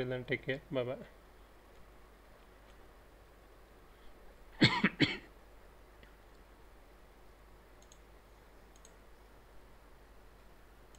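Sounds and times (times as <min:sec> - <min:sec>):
man coughing: 0:04.6 - 0:05.3
computer mouse clicks: 0:07.8 - 0:08.1, 0:08.7 - 0:09.0.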